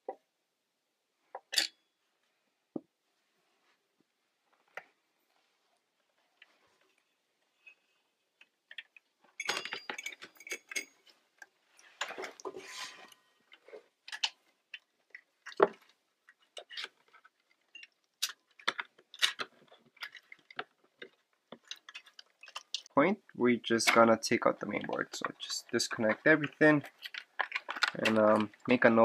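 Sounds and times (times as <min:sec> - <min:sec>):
wires and connectors clicking: 0:23.7 - 0:29.0.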